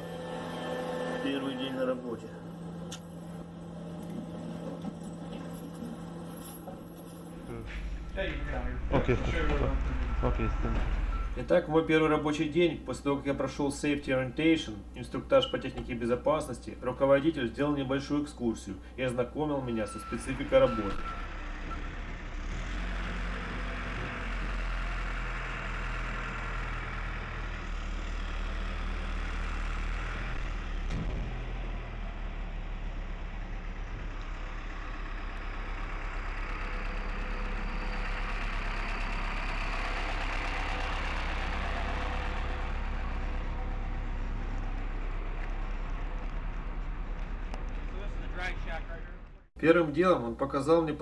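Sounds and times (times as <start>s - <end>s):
vehicle engine idling: 7.2s - 13.1s, 20.0s - 49.5s.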